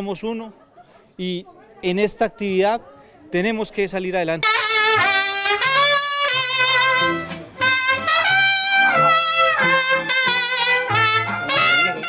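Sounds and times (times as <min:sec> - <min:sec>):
bass notes: 0:04.4 - 0:12.0
trumpet melody: 0:04.4 - 0:12.0
strummed guitars: 0:04.5 - 0:12.0
violin: 0:04.5 - 0:12.0.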